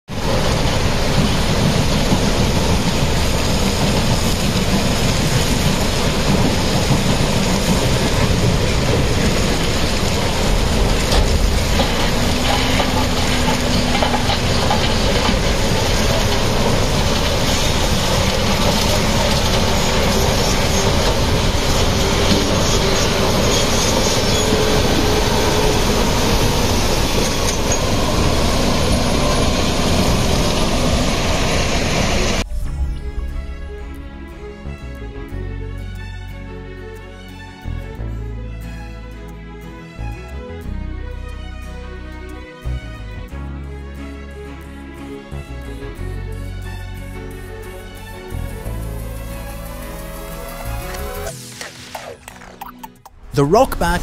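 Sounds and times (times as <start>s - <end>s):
diesel engines clattering rumble: 0.1s - 32.5s.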